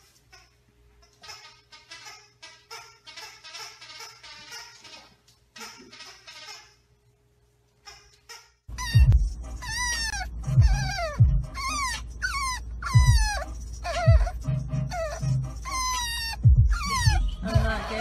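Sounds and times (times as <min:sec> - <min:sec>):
puppy whining: 0:07.9 - 0:17.7.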